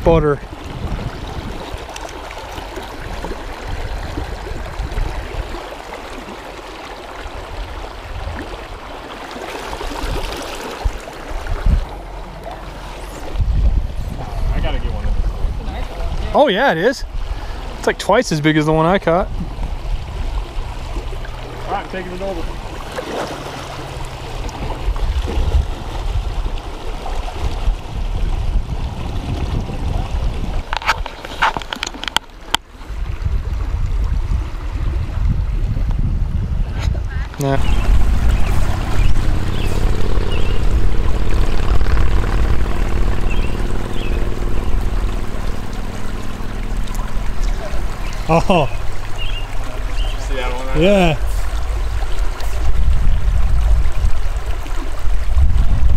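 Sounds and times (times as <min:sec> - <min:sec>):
river running over rocks: 0:00.0 - 0:33.1, 0:37.4 - 0:55.9
low microphone rumble: 0:10.8 - 0:16.4, 0:32.9 - 0:55.9.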